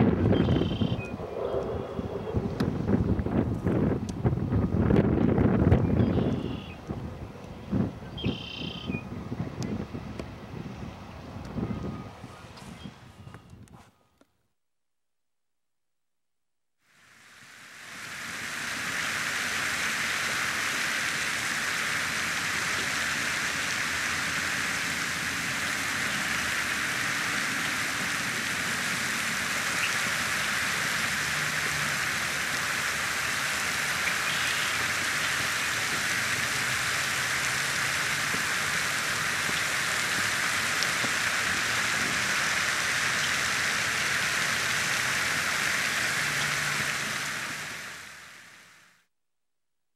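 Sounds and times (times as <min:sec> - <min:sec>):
fountain water falling on pond: 0:02.6 - 0:07.0, 0:08.1 - 0:09.0, 0:16.9 - 0:49.0.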